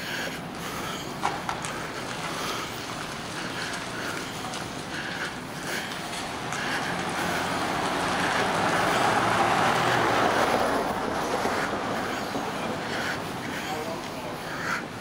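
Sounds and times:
motor vehicle rumbling hum: 0.0 - 15.0.

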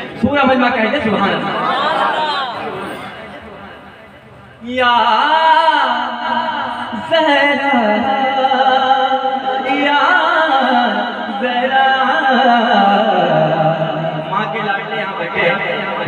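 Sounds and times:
man singing unaccompanied: 4.7 - 13.8.

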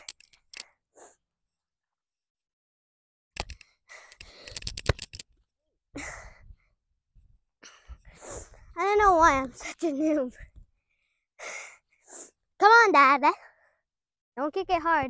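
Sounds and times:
sharp clicks and knocks: 0.0 - 0.7, 3.4 - 5.4.

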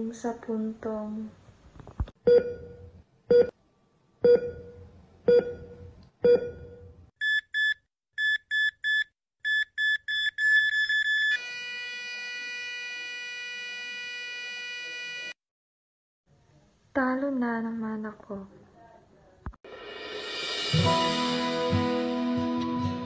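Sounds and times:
heart monitor beeping: 2.2 - 3.5, 4.2 - 11.8.

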